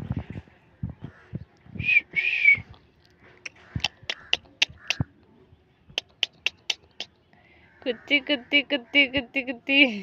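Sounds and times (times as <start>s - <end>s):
sharp mouth clicks: 3.4s - 5.1s, 5.9s - 7.2s.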